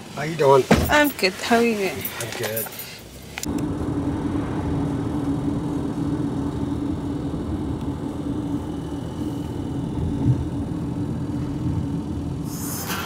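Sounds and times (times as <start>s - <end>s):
car engine and tyres rumbling: 0.0s - 13.0s
faint steady hum: 0.0s - 13.0s.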